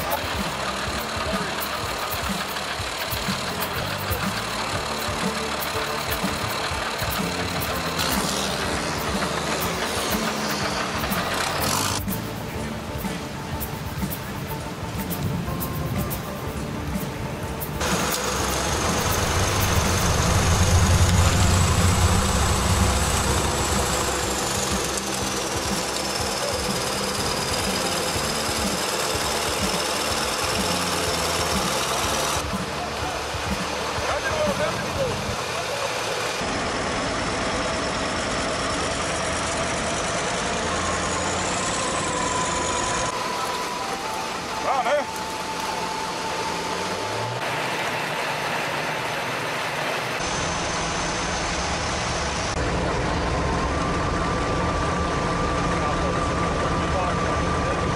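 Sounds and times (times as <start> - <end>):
diesel engine running under load: 0.0 - 57.9
thin high whine: 17.7 - 34.2.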